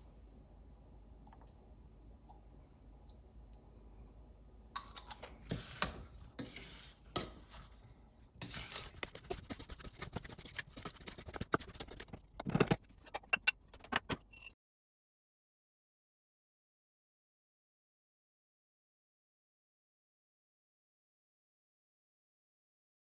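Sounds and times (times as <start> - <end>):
wooden spoon scraping saucepan: 5.5 - 14.0.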